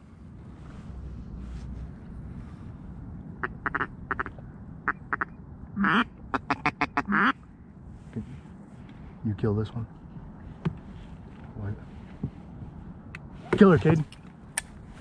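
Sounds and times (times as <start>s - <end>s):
duck quacking: 3.4s - 4.3s, 4.9s - 7.4s.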